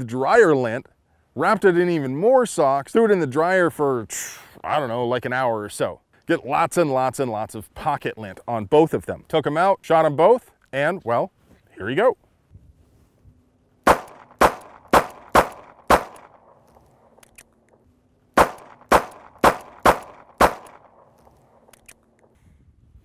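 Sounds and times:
handgun shots: 13.9 - 16.6, 18.4 - 21.2.

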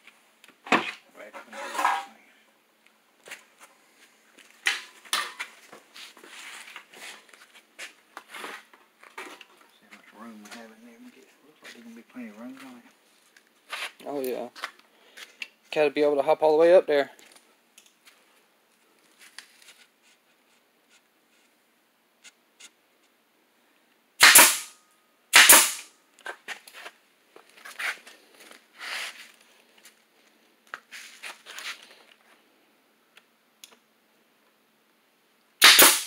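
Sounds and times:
nail gun shots: 24.2 - 25.9, 35.6 - 36.0.

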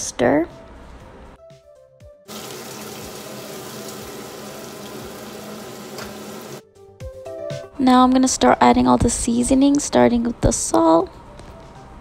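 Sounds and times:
vegetables sizzling in oil: 2.3 - 6.6.

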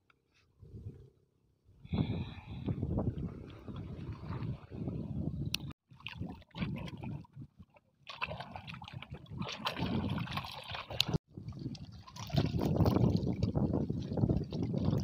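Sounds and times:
small waves lapping against rocks: 3.2 - 15.0.

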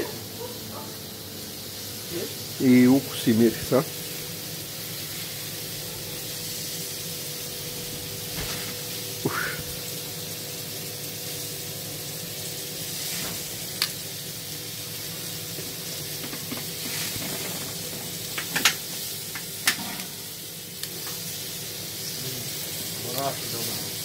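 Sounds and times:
food sizzling on a grill: 0.0 - 24.0
metal tongs clicking on grill: 18.4 - 20.1.

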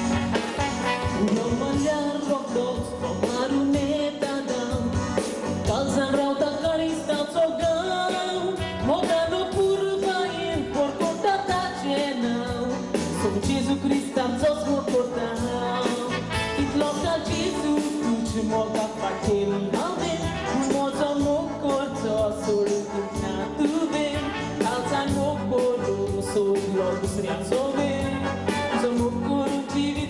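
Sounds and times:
band music with drum beat: 0.0 - 30.0
woman singing into a microphone: 1.2 - 28.2.

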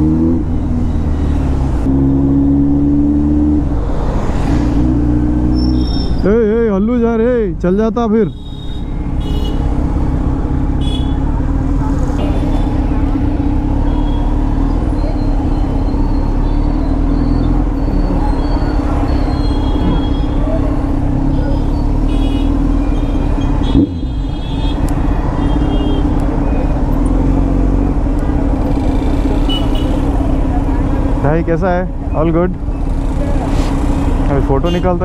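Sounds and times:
road traffic: 0.0 - 35.0
motorcycle engine running: 8.4 - 31.4.

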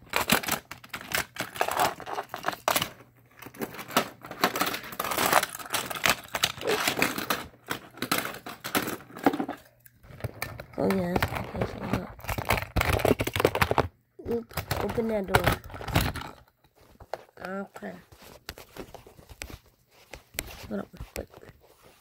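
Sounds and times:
plastic toys clicking and rattling: 0.0 - 17.3.

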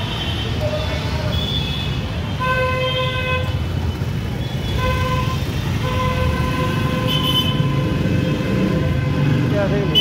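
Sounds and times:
motorbike and scooter engines rumbling: 0.0 - 10.0
vehicle horn honking: 4.7 - 9.3.

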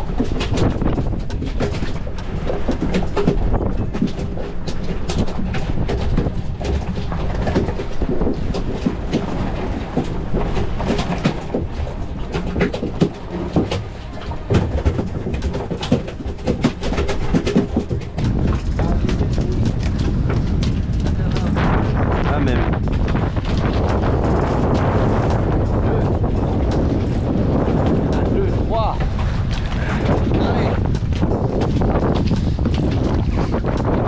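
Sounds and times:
small knocks and clicks: 0.0 - 21.6
outboard motor hum: 0.0 - 34.0
sea waves: 0.0 - 34.0
wind: 0.0 - 34.0.

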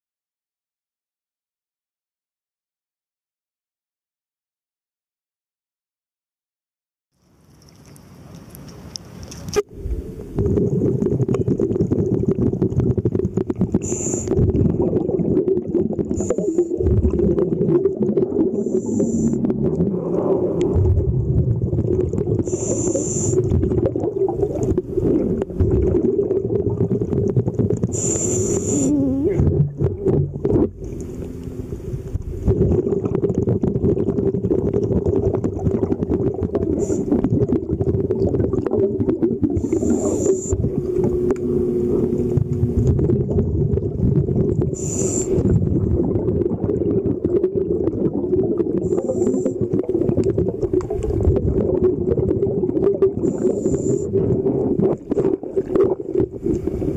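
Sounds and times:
bubbles rumbling and crackling: 7.5 - 56.9
regulator inhalation hiss: 13.8 - 14.3, 22.5 - 23.4, 27.9 - 29.2, 39.6 - 40.6, 44.8 - 45.4, 53.3 - 54.1.

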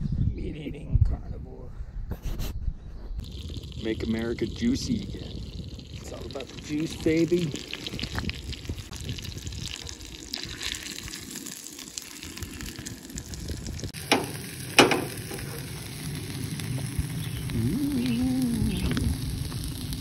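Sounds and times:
food sizzling in a frying pan: 3.2 - 20.0.

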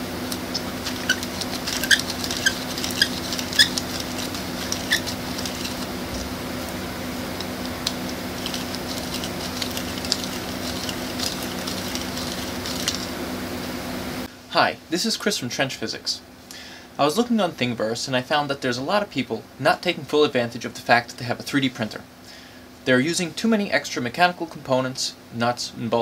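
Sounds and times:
plastic pulleys squeaking: 0.3 - 6.3, 7.6 - 13.1.

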